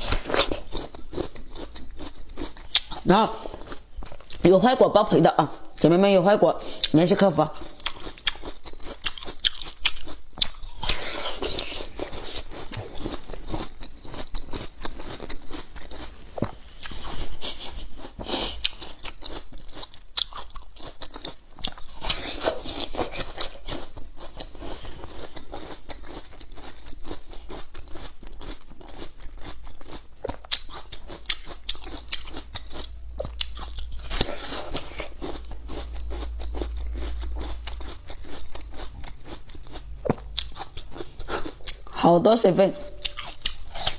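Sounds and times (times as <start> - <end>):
person chewing crunchy root: 0.0 - 5.9, 6.6 - 42.1, 42.9 - 43.9.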